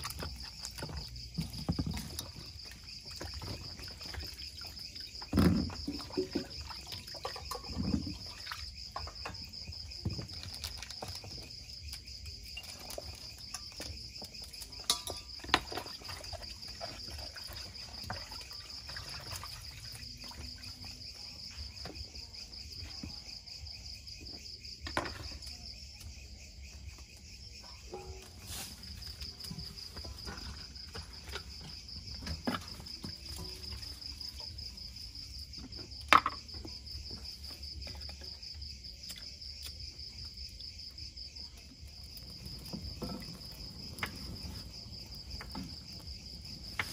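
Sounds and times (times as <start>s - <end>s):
crickets chirring: 0.0s - 46.9s
kitchen clicks and knocks: 14.8s - 15.7s.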